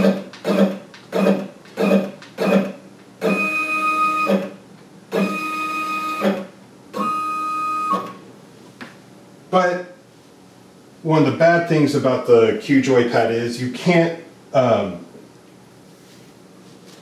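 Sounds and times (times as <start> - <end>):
stepper motors whining: 5.1 - 6.4.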